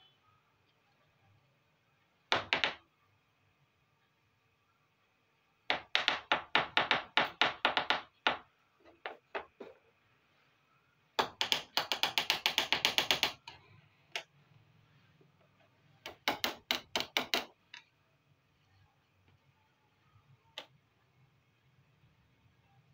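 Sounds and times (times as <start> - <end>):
plastic toys tapping on table: 2.3 - 2.8, 11.2 - 13.6, 16.1 - 17.9.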